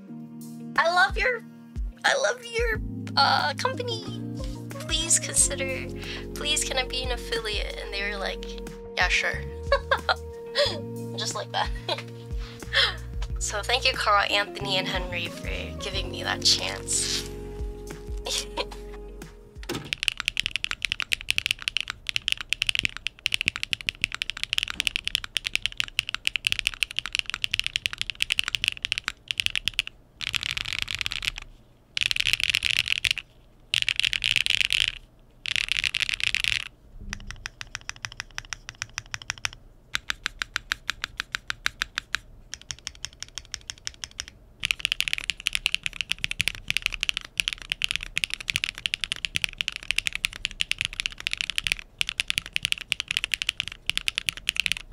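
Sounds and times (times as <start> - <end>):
fast typing on mechanical keyboard: 19.7 - 54.9.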